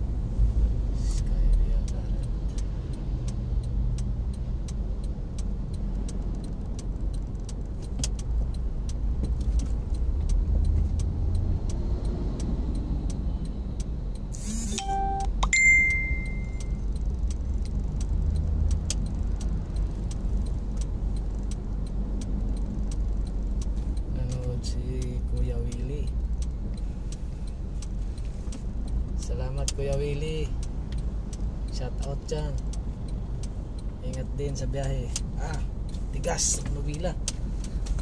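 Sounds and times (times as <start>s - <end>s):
car road and engine rumble: 0.0s - 38.0s
high electronic beep: 14.4s - 16.8s
light ticking and jingling: 15.0s - 38.0s.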